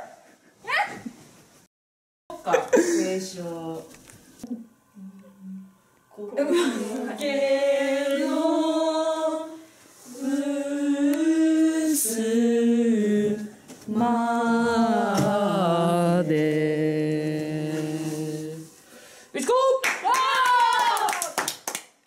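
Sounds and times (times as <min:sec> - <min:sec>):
women singing in unison: 0:06.4 - 0:18.8.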